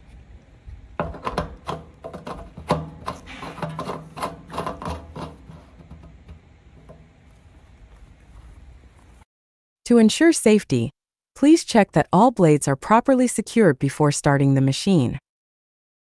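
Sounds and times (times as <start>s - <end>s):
plastic cap threads rasping: 1.0s - 7.0s.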